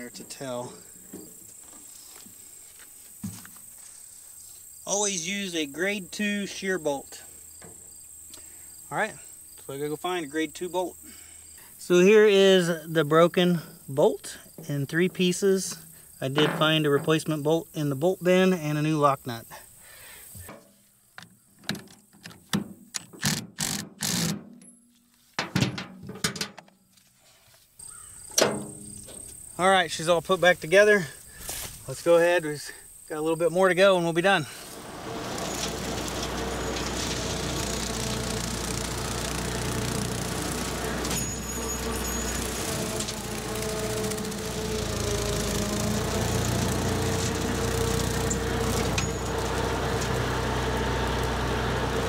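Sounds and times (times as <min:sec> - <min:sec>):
metal scraping: 0:15.6 - 0:17.6, 0:34.7 - 0:50.6
rotary mower: 0:34.5 - 0:52.0
tractor engine running: 0:34.6 - 0:52.0.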